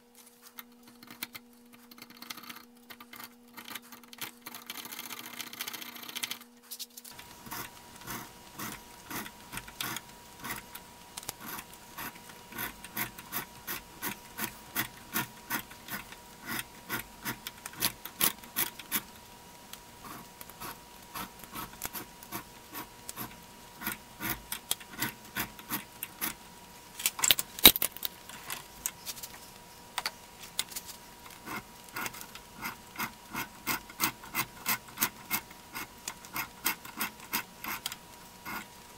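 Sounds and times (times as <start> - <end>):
steady hum: 0.0 - 38.9
file scraping along screw threads: 31.4 - 38.7.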